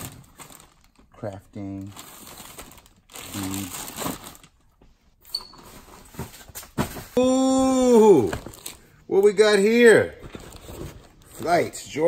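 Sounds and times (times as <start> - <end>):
plastic bags crinkling: 0.0 - 4.6
person saying ooh: 7.2 - 8.4.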